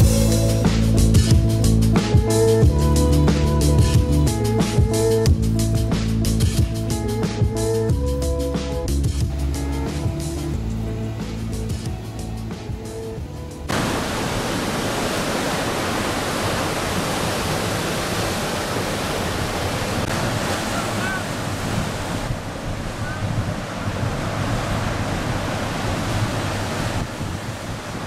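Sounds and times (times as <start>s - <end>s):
music track: 0.0s - 13.7s
waves breaking: 9.3s - 28.0s
wind on microphone: 19.4s - 28.0s.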